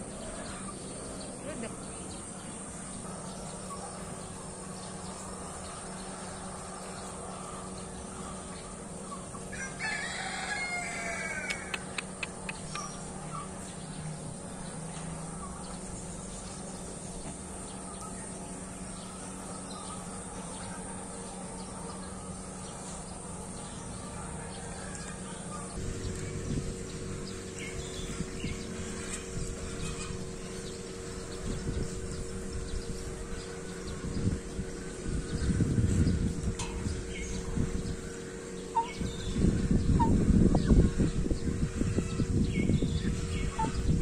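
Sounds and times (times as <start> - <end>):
background hum and hiss: 0.0 - 44.0
drawn-out bird call: 16.4 - 44.0.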